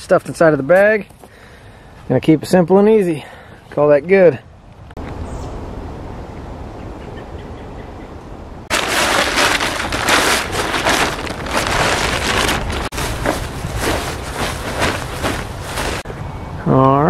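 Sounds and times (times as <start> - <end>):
synthetic fabric rustling: 8.7 - 16.1.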